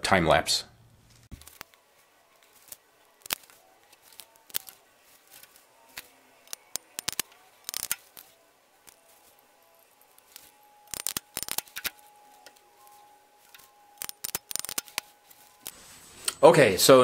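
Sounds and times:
small clicks and snips on wires: 2.4s - 9.1s, 9.8s - 12.6s, 13.4s - 15.8s.

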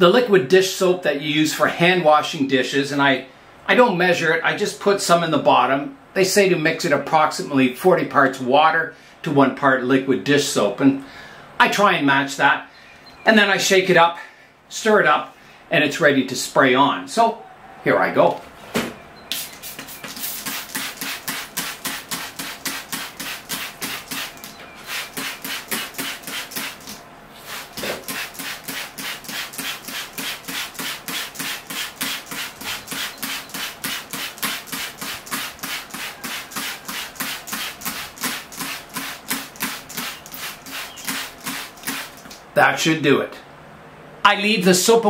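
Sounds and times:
spray bottle hissing mist: 19.3s - 42.3s.

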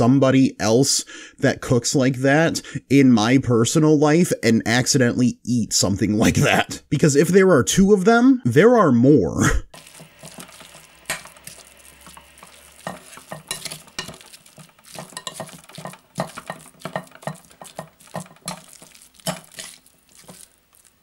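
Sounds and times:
spoon scraping glass bowl: 9.8s - 21.0s.

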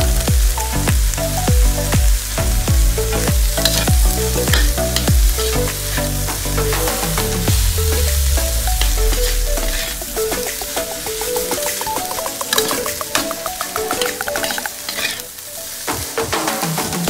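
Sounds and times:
background music with steady beat: 0.0s - 17.0s
food sizzling in oil: 3.0s - 16.2s.

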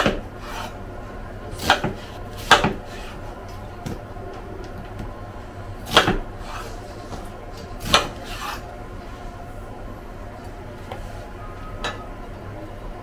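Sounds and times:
low steady hum: 0.0s - 13.0s
kitchenware clinking: 11.7s - 12.1s.

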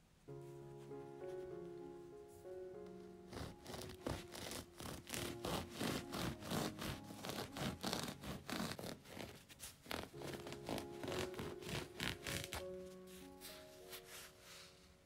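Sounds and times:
soft background music: 0.0s - 15.0s
bread knife sawing through crust: 3.4s - 12.4s.

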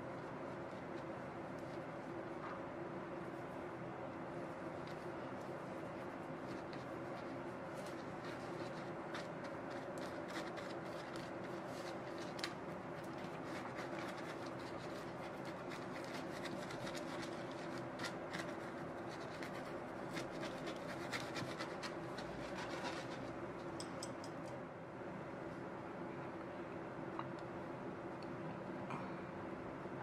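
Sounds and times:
faint steady hum: 0.0s - 30.0s
pastry brush rubbing on bread crust: 3.1s - 23.5s.

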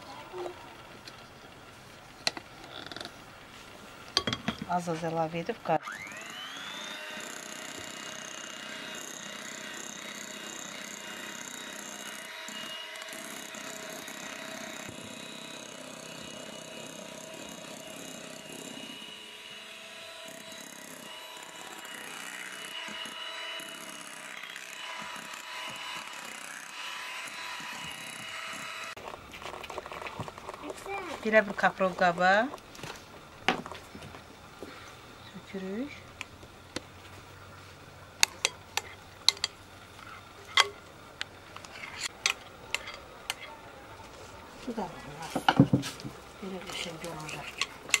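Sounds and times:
electric hand mixer whining: 5.3s - 29.0s.

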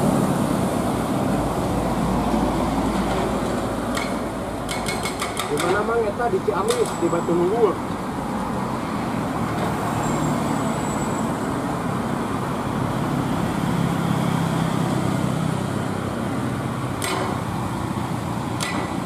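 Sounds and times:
road traffic: 0.0s - 19.0s.

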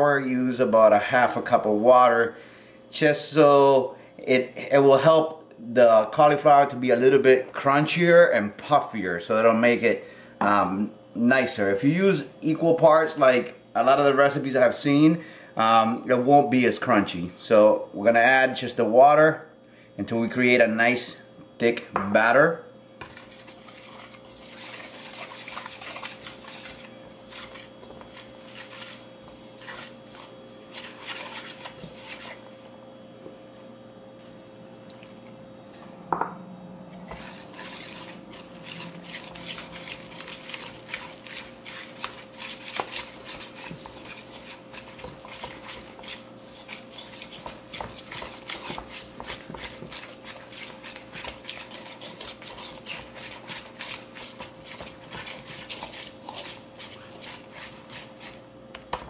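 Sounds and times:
whisk scraping metal bowl: 23.0s - 32.6s, 37.0s - 58.5s.

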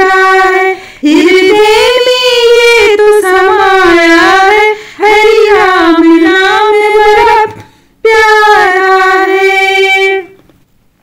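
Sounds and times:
woman singing unaccompanied: 0.0s - 10.4s
breath: 0.8s - 1.0s, 4.8s - 5.0s, 7.6s - 8.0s.

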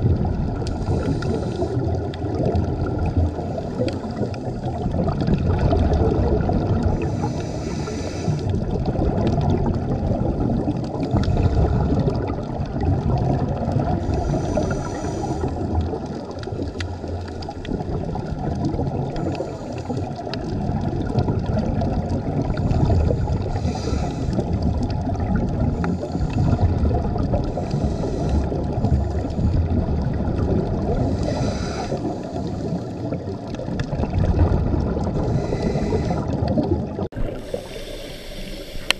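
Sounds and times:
underwater bubbling: 0.0s - 38.9s
regulator hiss: 7.2s - 8.4s, 37.2s - 38.9s.

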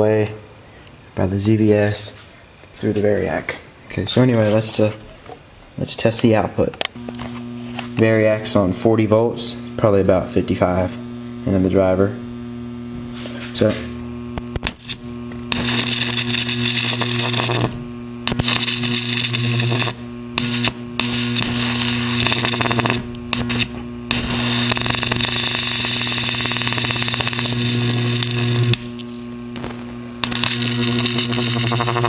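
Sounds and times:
steady low hum: 0.0s - 32.0s
electric arc buzzing: 6.8s - 32.0s.

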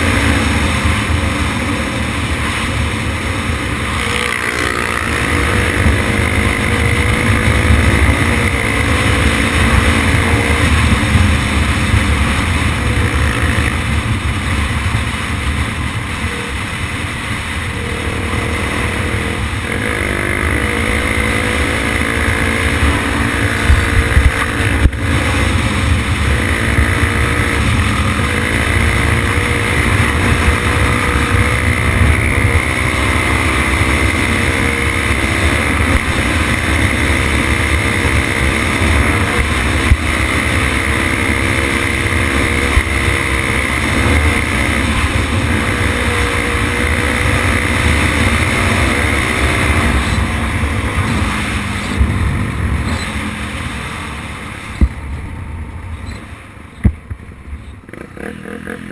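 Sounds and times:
motorcycle engine accelerating: 0.0s - 58.9s.

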